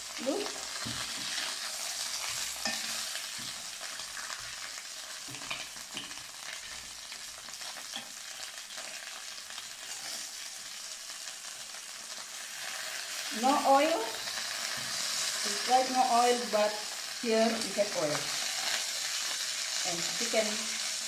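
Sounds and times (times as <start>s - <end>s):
chicken sizzling in a pan: 0.0s - 21.0s.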